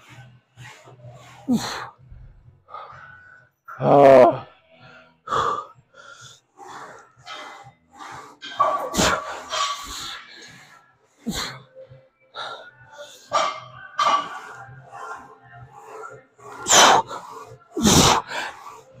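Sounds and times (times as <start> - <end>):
man breathing heavily: 0.0 - 3.8, 4.6 - 19.0
man grunting: 3.8 - 4.5.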